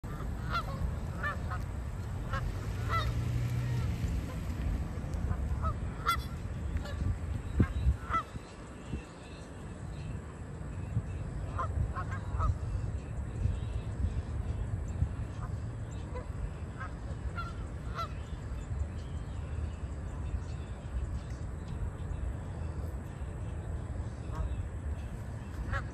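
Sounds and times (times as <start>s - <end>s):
geese honking: 0.0s - 9.4s, 11.4s - 12.9s, 15.3s - 18.7s, 24.1s - 25.9s.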